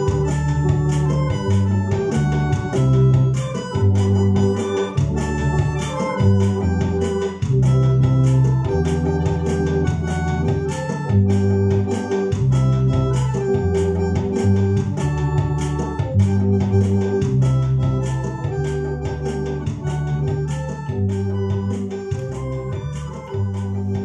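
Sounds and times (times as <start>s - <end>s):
electronic organ chords: 0.0s - 24.0s
steady beat: 0.0s - 24.0s.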